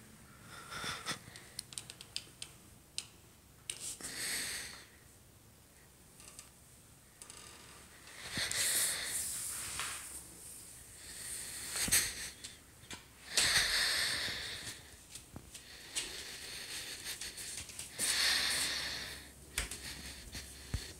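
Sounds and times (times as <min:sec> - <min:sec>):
person breathing: 0:00.2 - 0:01.6, 0:03.9 - 0:05.1, 0:07.9 - 0:20.9.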